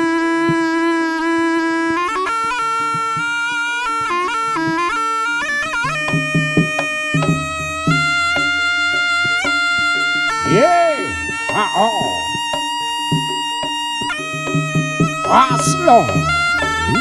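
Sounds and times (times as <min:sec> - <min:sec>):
shawm playing melody: 0:00.0 - 0:17.0
drum strokes: 0:05.8 - 0:17.0.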